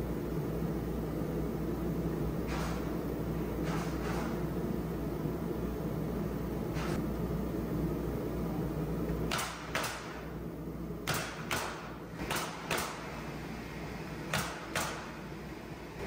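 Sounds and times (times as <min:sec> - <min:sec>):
low steady hum: 0:00.0 - 0:16.0
nail gun firing: 0:09.3 - 0:10.3, 0:11.1 - 0:13.1, 0:14.3 - 0:15.2.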